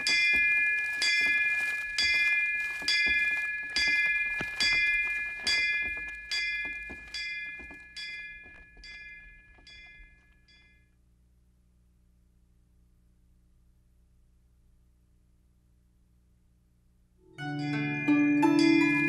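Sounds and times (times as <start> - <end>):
bell ringing: 0.0 - 10.7, 17.4 - 19.0.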